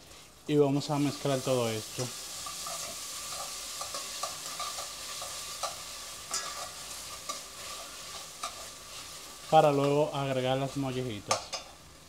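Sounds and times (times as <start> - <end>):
vegetables sizzling in pot: 0.0 - 12.0
utensil scraping and tapping pot: 2.0 - 9.0.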